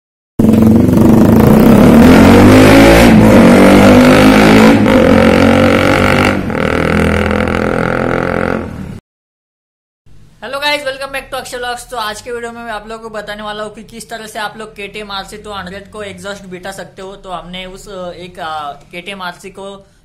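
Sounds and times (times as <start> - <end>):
motorcycle engine revving: 0.4 - 9.0.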